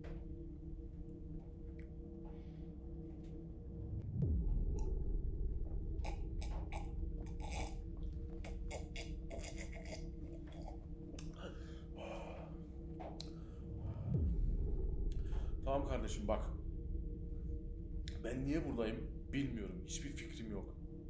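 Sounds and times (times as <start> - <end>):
low steady drone: 0.0 - 21.0
breaths: 11.4 - 14.2.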